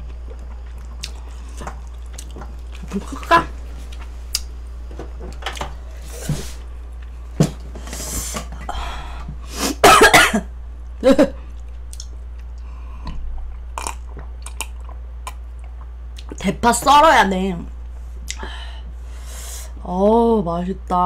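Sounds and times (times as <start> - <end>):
steady low hum: 0.0 - 21.0
breathy noise: 7.8 - 9.8
woman coughing: 9.7 - 11.4.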